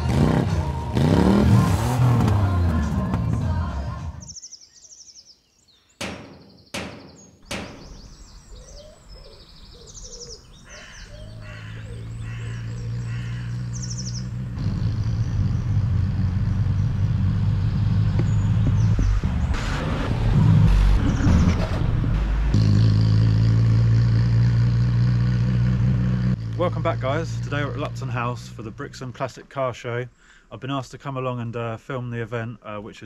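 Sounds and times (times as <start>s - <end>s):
birds chirping: 2.8s - 19.7s
sharp knocks: 6.0s - 8.2s.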